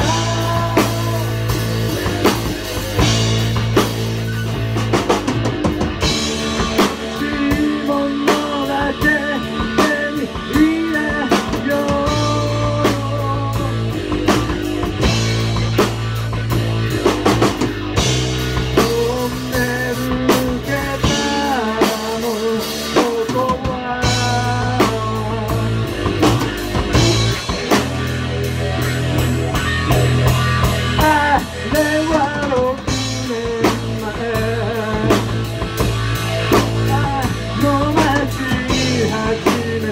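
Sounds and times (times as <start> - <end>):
person singing: 0.0 - 3.0, 6.8 - 14.2, 18.6 - 26.2, 30.9 - 35.6, 36.6 - 39.9
drum kit: 0.0 - 39.9
electric bass: 0.0 - 39.9
electric guitar: 0.0 - 39.9.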